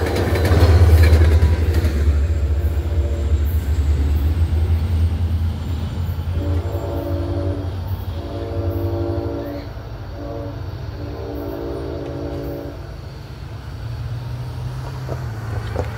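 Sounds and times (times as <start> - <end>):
train rumble: 0.0 - 15.9
train horn blasts: 2.8 - 3.6, 6.3 - 13.0.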